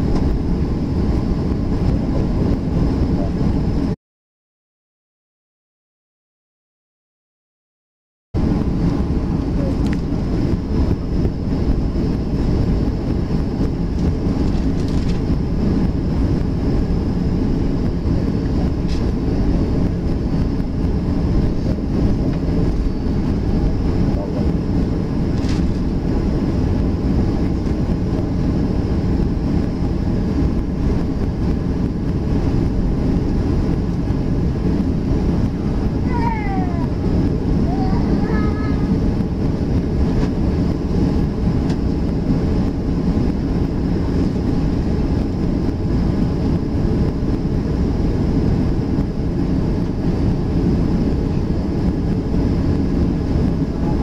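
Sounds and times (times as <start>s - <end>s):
airliner cabin rumble: 0.0s - 4.0s, 8.4s - 54.0s.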